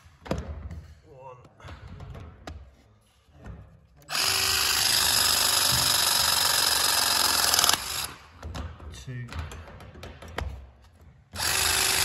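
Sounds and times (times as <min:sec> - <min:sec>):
pipe press tool motor running: 0:04.1 - 0:08.2, 0:11.4 - 0:12.0.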